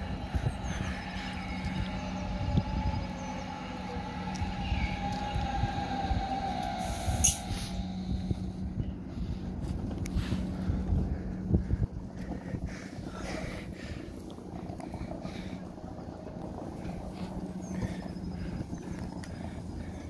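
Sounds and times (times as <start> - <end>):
train motor whine: 0.0 - 11.5
train rumble and hum: 0.0 - 20.0
short air hiss: 6.8 - 7.8.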